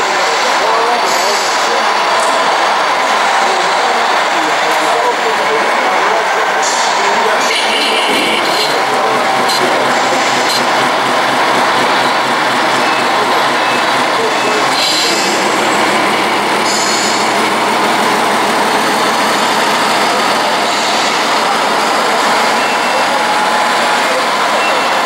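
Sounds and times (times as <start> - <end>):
chatter of a busy hall: 0.0 - 25.0
diesel engine rumble: 7.2 - 22.6.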